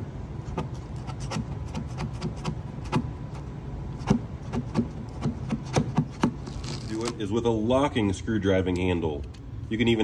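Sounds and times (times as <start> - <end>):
low steady hum: 0.0 - 10.0
scraper blade scraping metal: 0.5 - 3.4.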